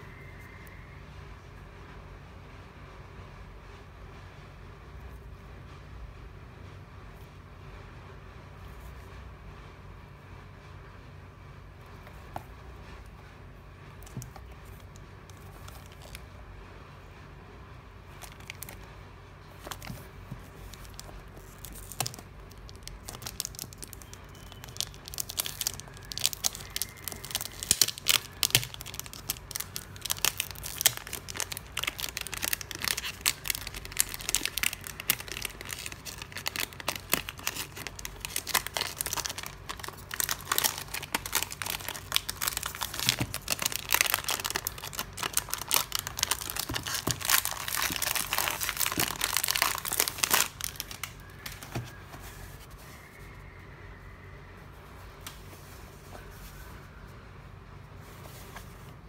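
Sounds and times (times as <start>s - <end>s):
cellophane crinkling: 14.0s - 16.3s, 18.1s - 18.9s, 19.5s - 52.8s.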